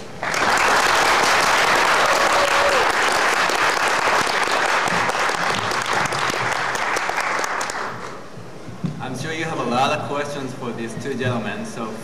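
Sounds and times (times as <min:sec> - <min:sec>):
audience applauding: 0:00.1 - 0:08.2.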